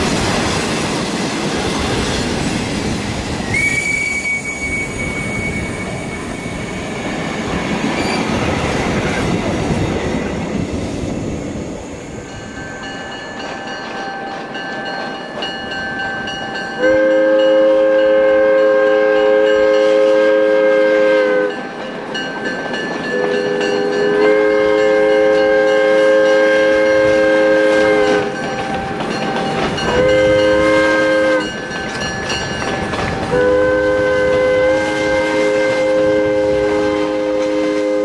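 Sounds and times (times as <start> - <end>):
train rolling rumble: 0.0 - 38.0
train air horn blasts: 3.5 - 6.6, 16.8 - 21.6, 23.1 - 28.4, 29.9 - 31.6, 33.2 - 38.0.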